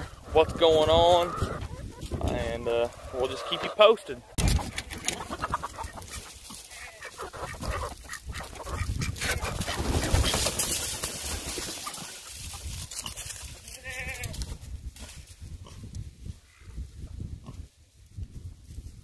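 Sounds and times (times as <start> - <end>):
chickens clucking and calling: 0.0 - 13.7.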